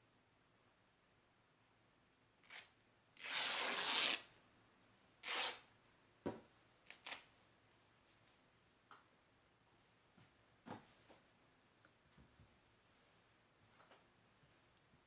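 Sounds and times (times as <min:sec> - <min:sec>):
cloth ripping: 0:02.4 - 0:04.3, 0:05.2 - 0:05.7, 0:06.9 - 0:07.3.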